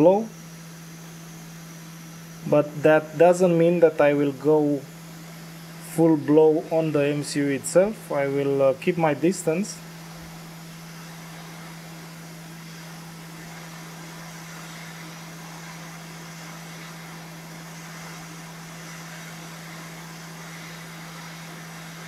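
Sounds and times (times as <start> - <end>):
blower hum: 0.0 - 22.0
hot air hiss: 0.0 - 22.0.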